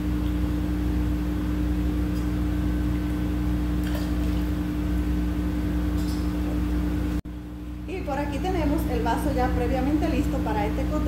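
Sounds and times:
machine hum: 0:00.0 - 0:11.0
liquid splashing into shaker: 0:03.8 - 0:04.6.

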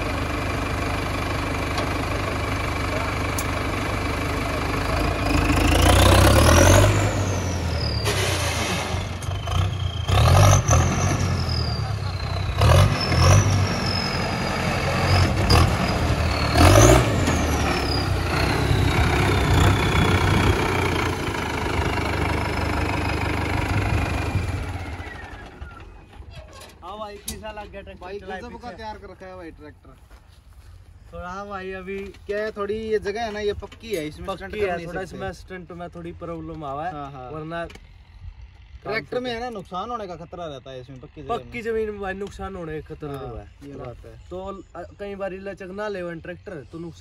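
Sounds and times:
tractor diesel engine revving: 0:00.0 - 0:26.4
high engine whine: 0:00.0 - 0:29.0.

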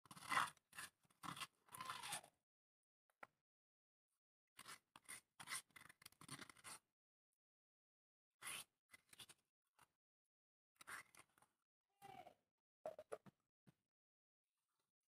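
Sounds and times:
fingers scraping stone mortar: 0:00.1 - 0:02.2, 0:04.6 - 0:06.8.

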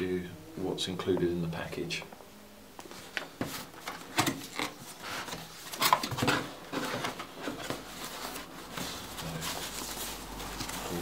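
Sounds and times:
tissue paper and cardboard rustling: 0:02.9 - 0:11.0.

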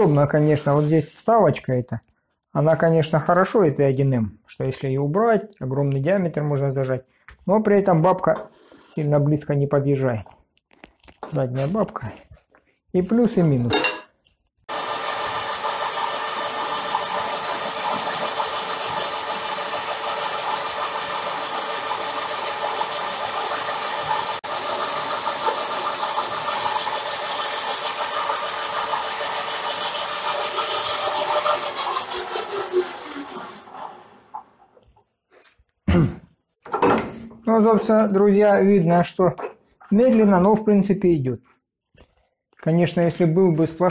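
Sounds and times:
drill cutting metal: 0:14.7 - 0:34.1
metal lathe whirring: 0:14.7 - 0:34.2.

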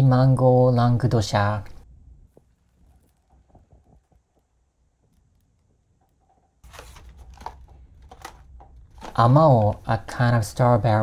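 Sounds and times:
low hum: 0:00.0 - 0:11.0
cardboard boxes rustling and knocking: 0:06.6 - 0:09.8.

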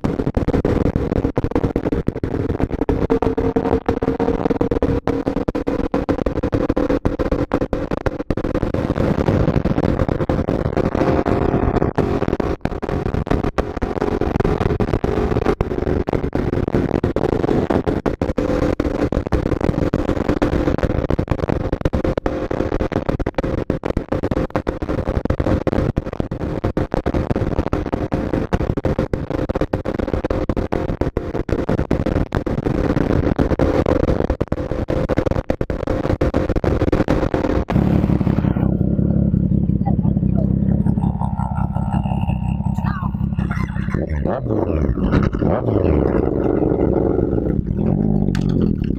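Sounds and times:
motorcycle engine cruising: 0:00.6 - 0:19.0, 0:37.7 - 0:48.9.

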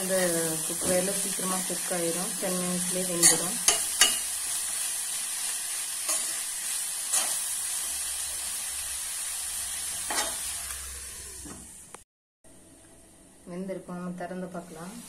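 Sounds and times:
vegetables sizzling in oil: 0:00.0 - 0:12.0.

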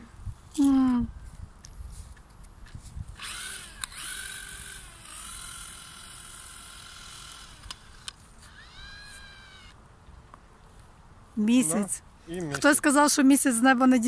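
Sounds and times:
cordless drill motor whine: 0:03.1 - 0:09.8.

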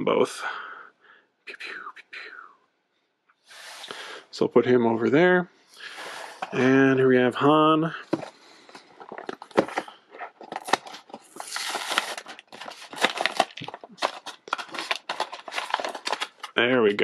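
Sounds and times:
cardboard tearing: 0:09.1 - 0:16.6.

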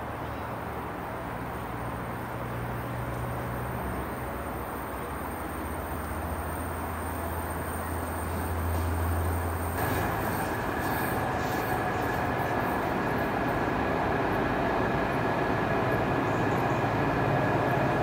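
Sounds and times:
diesel locomotive engine drone: 0:00.0 - 0:18.0
thin high whine: 0:07.8 - 0:18.0.

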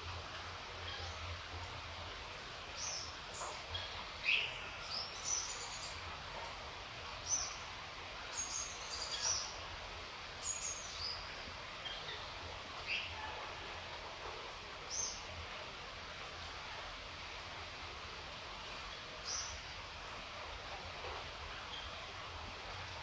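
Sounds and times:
gentle rain hiss: 0:00.0 - 0:23.0
birds chirping: 0:00.3 - 0:01.7, 0:02.6 - 0:06.1, 0:07.1 - 0:09.7, 0:10.4 - 0:13.4, 0:14.8 - 0:15.4, 0:18.6 - 0:20.7, 0:21.5 - 0:23.0.

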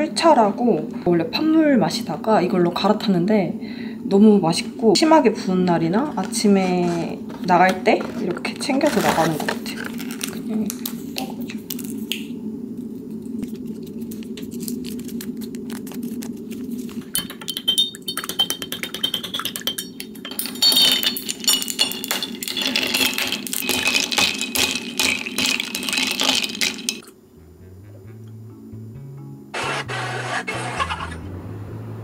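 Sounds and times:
spoon clinking against glass: 0:17.2 - 0:27.1.

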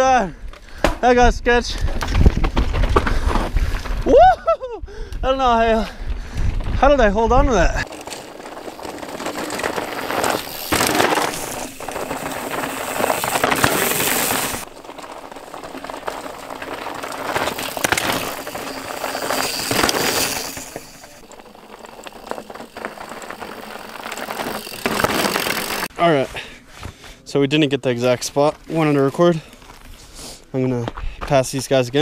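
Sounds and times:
bike tyres crunching on rocky dirt: 0:00.6 - 0:04.2, 0:05.5 - 0:26.5.

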